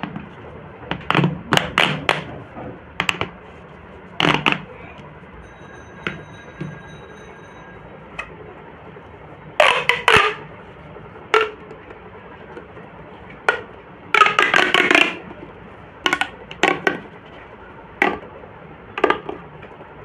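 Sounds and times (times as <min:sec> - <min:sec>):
plastic pop tubes clicking: 0:16.1 - 0:17.0.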